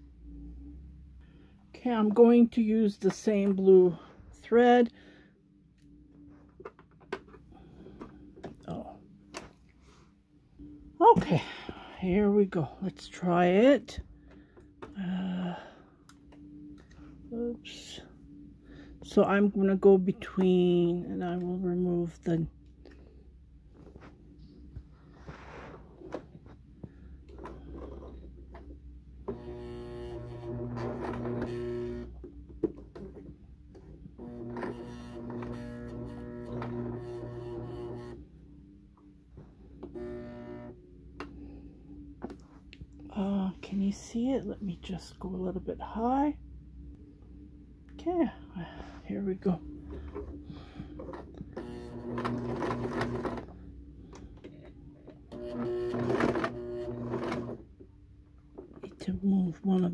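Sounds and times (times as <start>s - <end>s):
sewing machine stitching: 29.2s - 32.2s, 34.2s - 38.2s, 51.5s - 53.6s, 55.3s - 57.6s.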